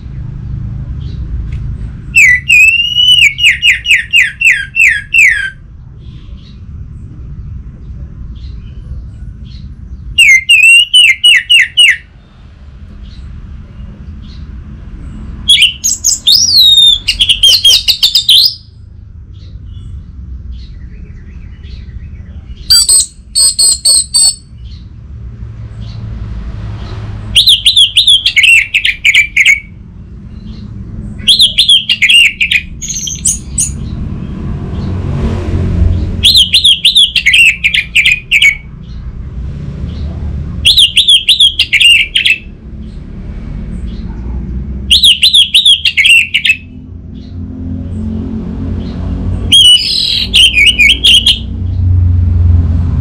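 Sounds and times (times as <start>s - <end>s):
thrush singing whistled notes: 2.1s - 6.4s, 10.2s - 12.2s, 15.5s - 18.8s, 20.6s - 24.8s, 27.3s - 29.8s, 31.2s - 33.9s, 36.2s - 38.7s, 40.7s - 42.5s, 44.9s - 46.8s, 49.4s - 51.5s.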